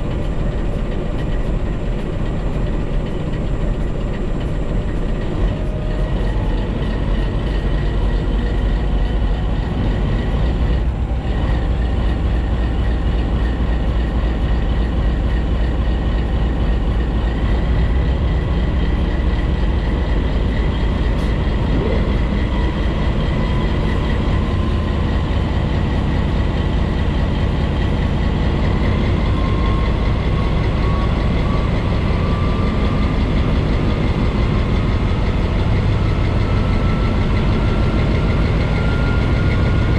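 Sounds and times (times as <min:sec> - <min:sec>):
locomotive engine drone: 0:00.0 - 0:39.9
train running noise: 0:00.0 - 0:39.9
rising whine: 0:04.2 - 0:35.6.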